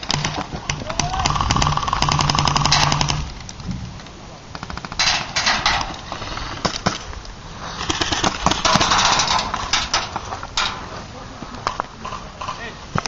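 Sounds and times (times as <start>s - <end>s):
airsoft guns firing: 0.0s - 3.4s, 4.5s - 7.1s, 7.8s - 9.8s.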